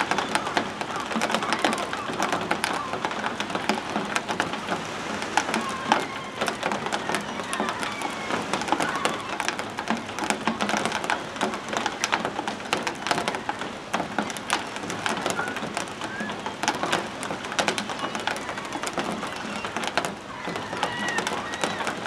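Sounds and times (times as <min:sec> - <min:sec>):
gull calls: 0:00.0 - 0:03.3, 0:17.9 - 0:22.0
birds splashing in shallow water: 0:00.0 - 0:22.0.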